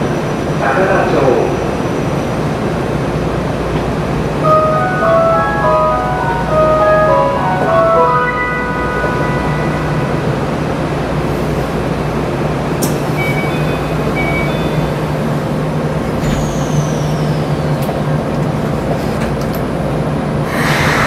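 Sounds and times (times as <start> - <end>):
electric train equipment hum: 0.0 - 21.0
faint falling whistle: 16.2 - 17.6.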